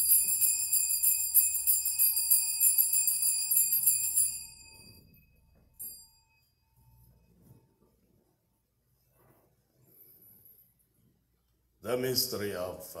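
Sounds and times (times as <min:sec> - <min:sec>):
altar bells jingling: 0:00.0 - 0:07.6.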